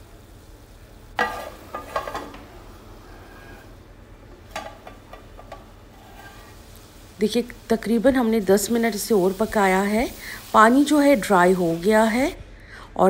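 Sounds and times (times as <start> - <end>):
faint food sizzling: 0.0 - 12.4
metal lid clattering on pot: 1.2 - 2.5, 4.5 - 6.5.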